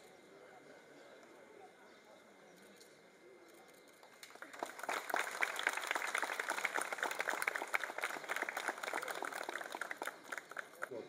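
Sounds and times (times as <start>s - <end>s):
people applauding: 4.0s - 10.9s.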